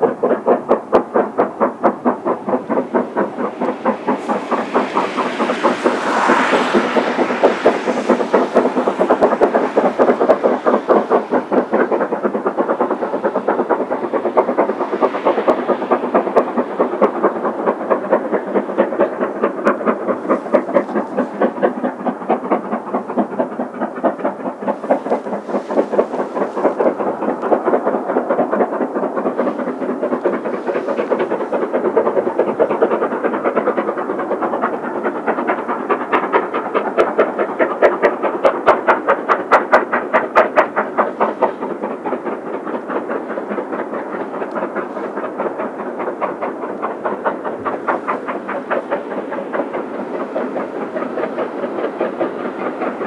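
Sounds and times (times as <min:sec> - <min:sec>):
steam locomotive exhaust beats: 0:00.0 - 0:53.0.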